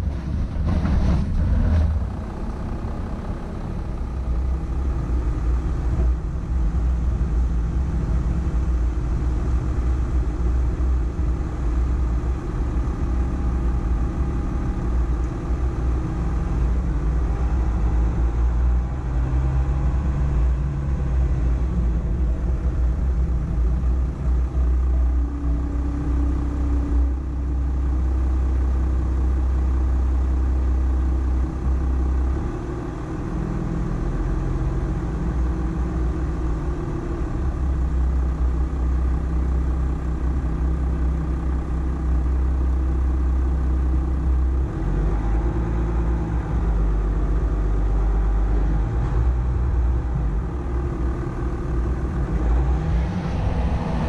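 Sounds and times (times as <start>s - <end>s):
pickup engine rumble: 0.0s - 54.0s.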